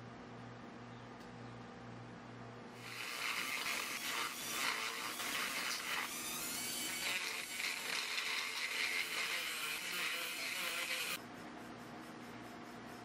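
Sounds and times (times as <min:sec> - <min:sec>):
rotary tool grinding metal: 0:02.8 - 0:11.2.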